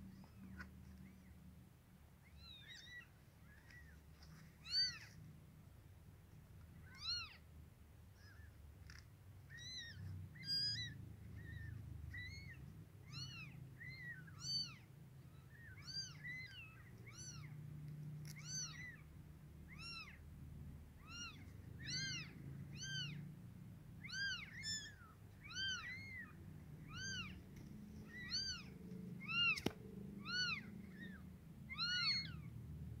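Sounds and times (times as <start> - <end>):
newborn kittens mewing: 2.2 - 4.0, 4.6 - 5.2, 6.8 - 7.4, 8.2 - 17.6, 18.2 - 20.2, 20.9 - 23.3, 24.0 - 32.5.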